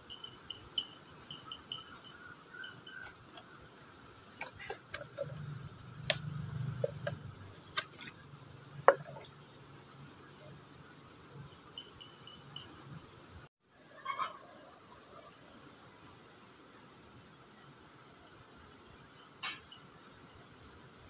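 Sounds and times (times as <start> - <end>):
insects droning: 0.0 - 21.0
handling clicks and knocks: 4.4 - 8.1.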